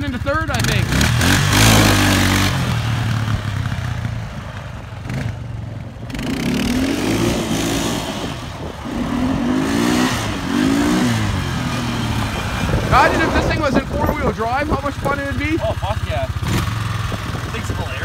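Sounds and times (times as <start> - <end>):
atv engine revving: 0.0 - 18.0
wind noise on microphone: 6.1 - 18.0.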